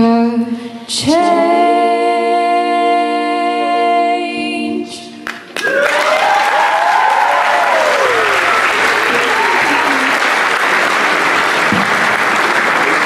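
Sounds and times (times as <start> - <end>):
women singing in harmony: 0.0 - 5.2
audience applause and cheering: 5.2 - 13.0.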